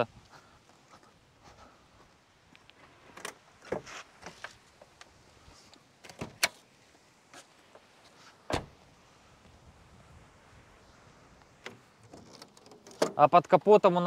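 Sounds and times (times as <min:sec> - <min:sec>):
car door opening: 0:06.0 - 0:06.6, 0:08.5 - 0:08.8
car door shutting thump: 0:08.5 - 0:08.8.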